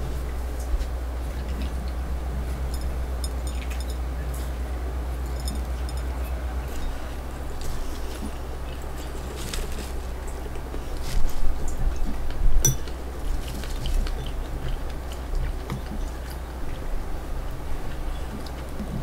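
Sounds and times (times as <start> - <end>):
low steady hum: 0.0 - 19.0
dishes and utensils clicking: 5.3 - 6.2, 12.0 - 13.0.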